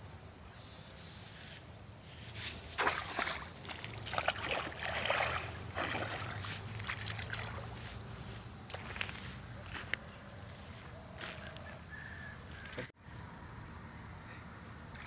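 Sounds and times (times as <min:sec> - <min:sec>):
wading through muddy water: 0:02.4 - 0:11.8.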